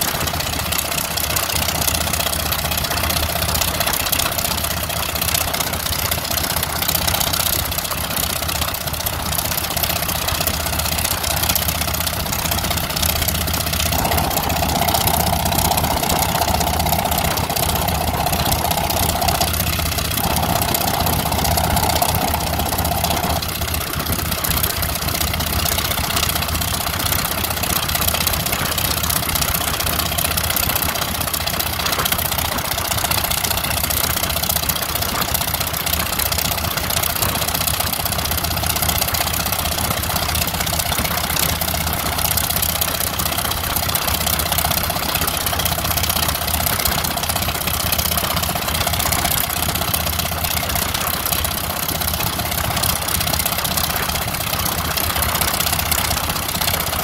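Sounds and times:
helicopter piston engine running: 0.0s - 57.0s
higher steady hum: 11.2s - 26.4s.

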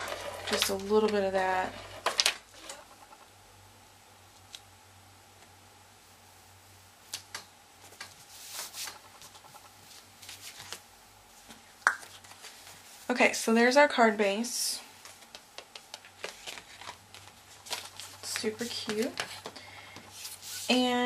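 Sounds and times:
soft paper rustle: 7.8s - 13.2s, 14.8s - 21.0s.

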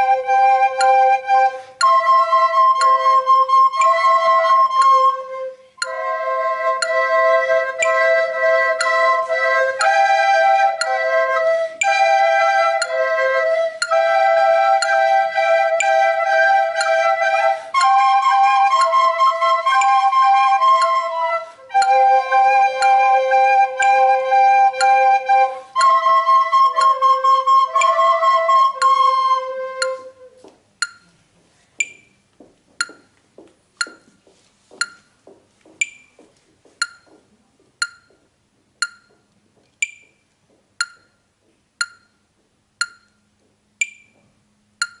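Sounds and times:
electronic metronome ticks: 0.0s - 30.1s, 30.8s - 31.2s, 31.8s - 45.0s
recorders playing held notes: 0.0s - 31.2s.

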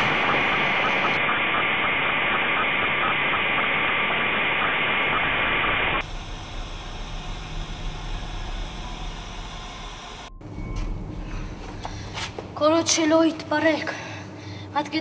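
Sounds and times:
static hiss: 0.0s - 10.3s
low hum: 0.0s - 14.6s.

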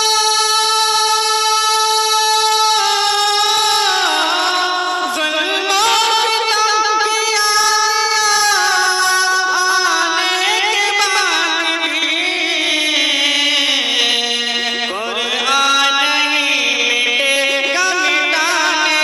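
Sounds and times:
man singing into a microphone: 0.0s - 19.0s.

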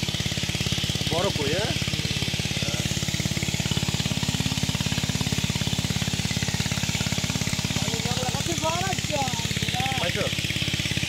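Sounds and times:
water pump engine thumping: 0.0s - 11.0s.

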